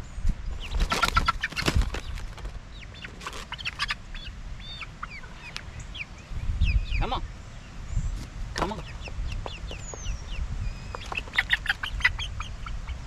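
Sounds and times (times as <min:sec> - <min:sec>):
wings flapping: 0:00.6 - 0:03.9
chickens squawking: 0:00.6 - 0:13.0.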